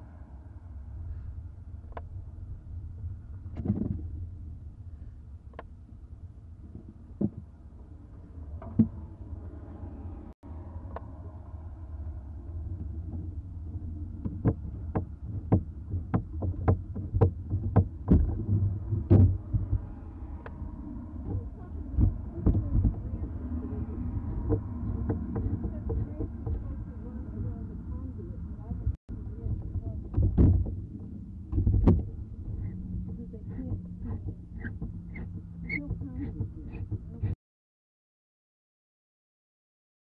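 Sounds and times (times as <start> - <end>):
low rumble: 0.0 - 37.4.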